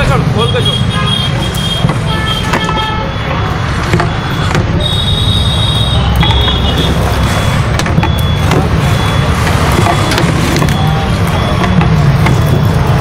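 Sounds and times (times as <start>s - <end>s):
low rumble of passing vehicles: 2.9s - 13.0s.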